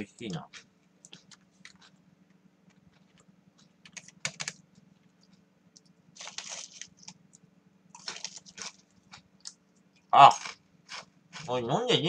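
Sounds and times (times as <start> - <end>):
computer keyboard typing: 3.8 - 4.6.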